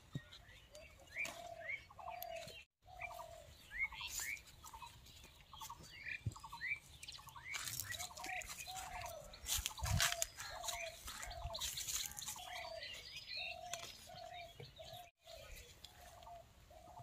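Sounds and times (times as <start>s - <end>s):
birds chirping and whistling: 0.1s - 17.0s
leaves rustling: 7.4s - 13.0s.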